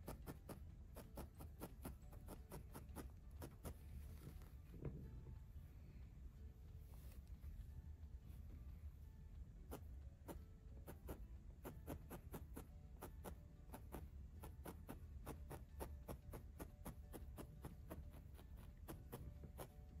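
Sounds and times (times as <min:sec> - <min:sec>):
low hum: 0:03.1 - 0:11.8.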